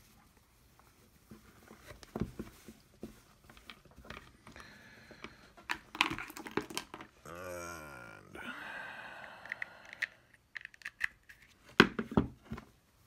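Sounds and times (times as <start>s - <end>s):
clicks and knocks of small parts: 5.2s - 7.1s, 9.4s - 11.9s.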